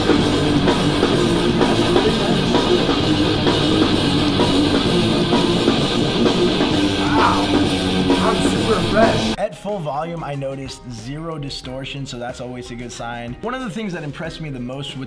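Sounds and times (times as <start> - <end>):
rock song through speaker: 0.0 - 9.9.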